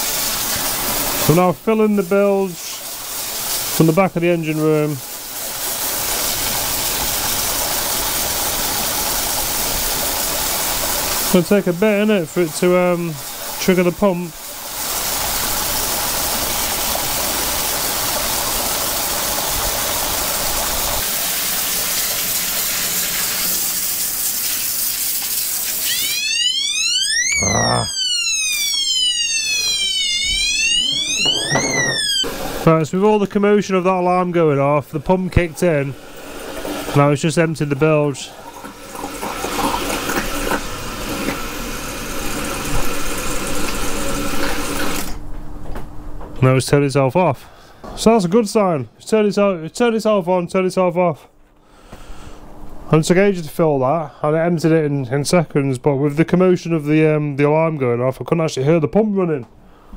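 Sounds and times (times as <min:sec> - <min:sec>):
water gushing from a hose: 0:00.0 - 0:26.9, 0:34.9 - 0:45.2
bilge pump running: 0:02.3 - 0:45.2.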